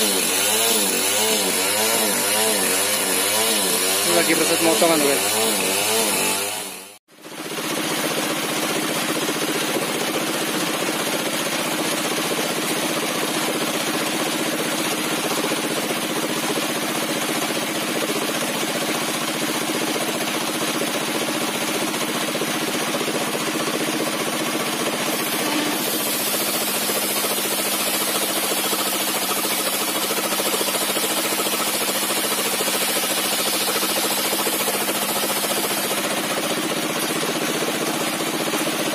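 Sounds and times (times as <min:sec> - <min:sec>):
sawmill saw droning: 0:00.0 - 0:38.9.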